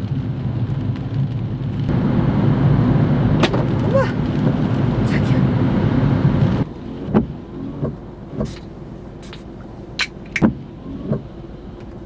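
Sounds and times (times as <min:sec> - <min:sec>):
raindrops knocking on car roof: 0:03.4 - 0:05.0, 0:06.4 - 0:08.6.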